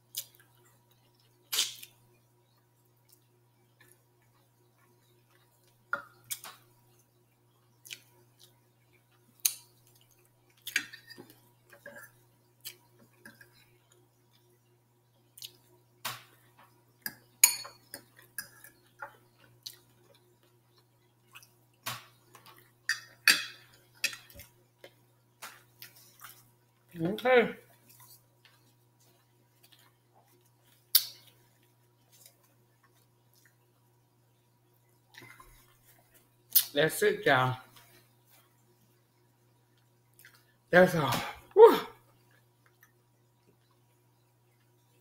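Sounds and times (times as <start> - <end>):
wet chewing and lip smacks: 7.8 - 8.6, 15.4 - 15.7, 19.4 - 22.7, 40.1 - 40.5.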